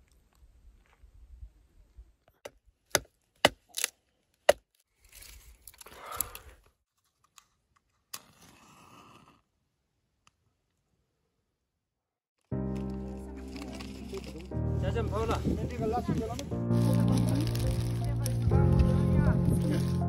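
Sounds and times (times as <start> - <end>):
dry wood cracking: 2.9 - 7.5, 12.4 - 20.0
wood splintering crunch: 12.5 - 15.5, 16.1 - 20.0.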